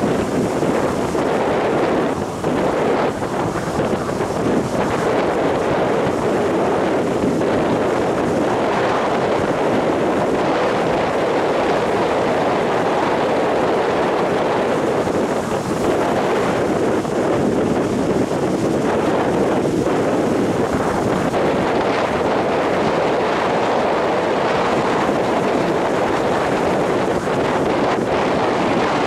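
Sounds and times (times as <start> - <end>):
heavy surf breaking on beach: 0.0 - 29.0
wind on microphone: 0.0 - 29.0.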